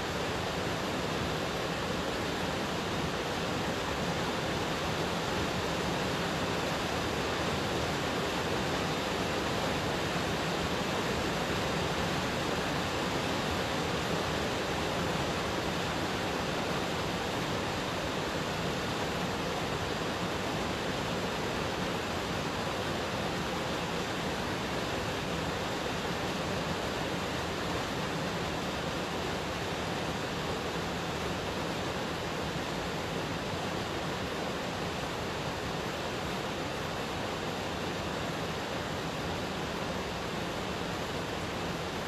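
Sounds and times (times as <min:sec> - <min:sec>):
steady rushing hiss: 0:00.0 - 0:42.0.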